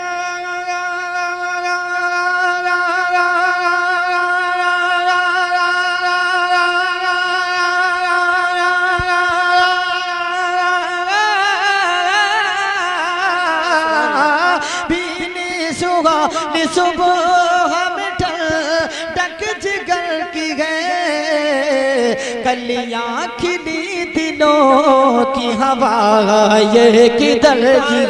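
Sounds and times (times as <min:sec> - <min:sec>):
man singing long note: 0:00.0 - 0:28.0
man singing ornamented runs: 0:13.2 - 0:28.0.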